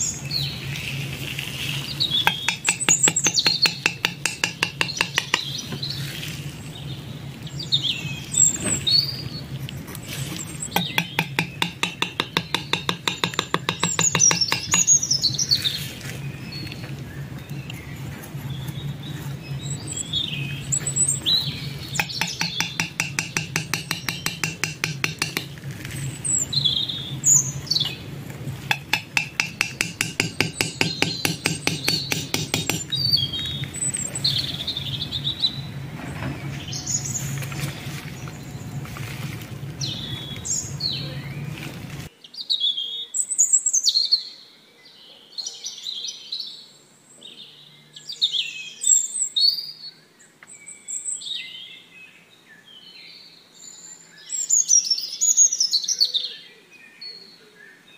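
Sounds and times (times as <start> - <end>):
birds chirping and whistling: 0.0 - 44.3
rapid repeated bird notes: 0.1 - 9.4, 10.2 - 15.4, 18.6 - 35.8
steady low hum: 15.9 - 42.1.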